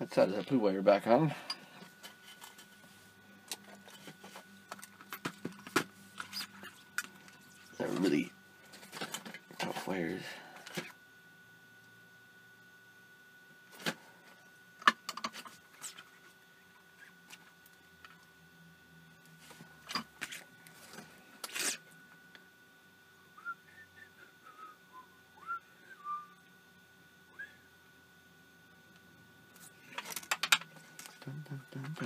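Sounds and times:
quiet whistled notes: 23.2s - 26.5s, 27.3s - 27.7s
small tools clicking and tapping: 29.9s - 31.1s.

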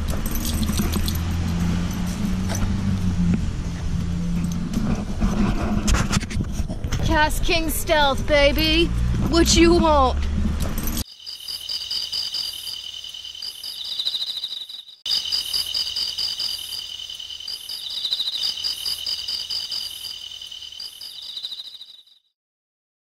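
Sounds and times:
insects chirring: 10.8s - 22.2s.

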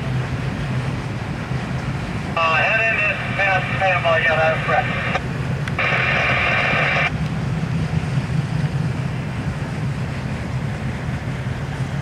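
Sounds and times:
freight train rumbling past: 0.0s - 12.0s
radio static burst: 2.4s - 5.2s, 5.8s - 7.1s.

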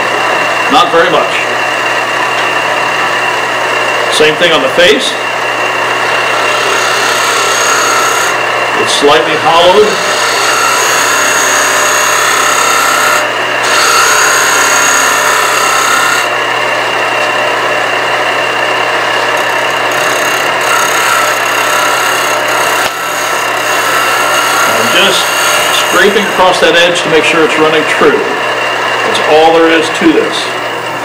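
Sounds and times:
wood lathe humming: 0.0s - 31.0s
turning tool rasping on wood: 5.8s - 8.5s, 9.4s - 16.4s, 19.2s - 26.5s.

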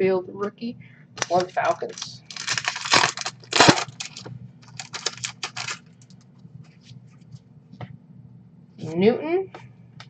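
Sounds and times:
wrapper tearing open: 1.2s - 5.8s
cards clicking and rustling: 1.2s - 6.2s.

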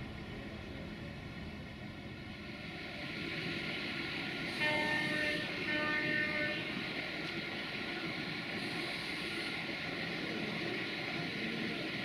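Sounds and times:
train rumble: 0.0s - 12.0s
locomotive horn blasts: 4.6s - 6.7s.

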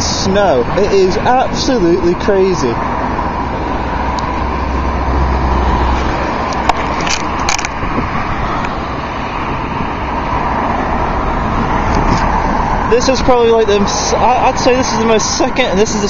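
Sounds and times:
cars passing on wet road: 0.0s - 16.0s
sharp clicks: 6.5s - 7.8s.

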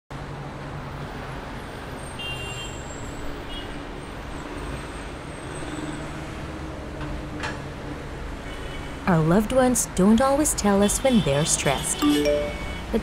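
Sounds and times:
city road traffic: 0.1s - 13.0s
faint high tone: 12.0s - 12.9s.

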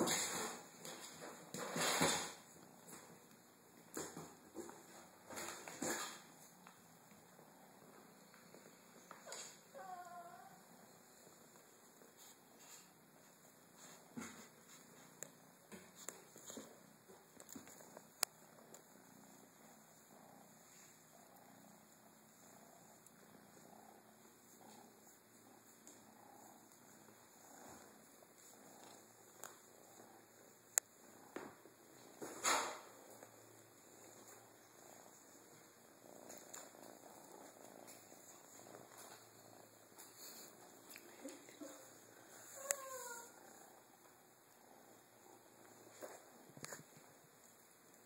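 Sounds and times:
kitten purring: 0.0s - 48.0s.

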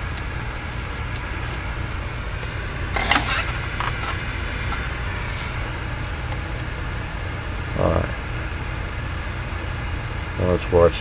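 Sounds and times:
steady low hum: 0.0s - 11.0s
rustling scrape: 2.9s - 5.6s.

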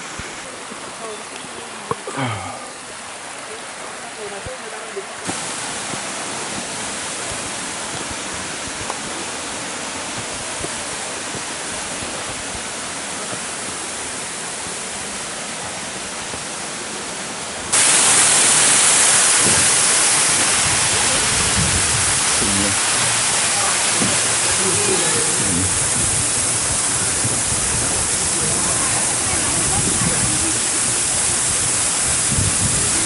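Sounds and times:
waterfall rushing: 0.0s - 33.0s.

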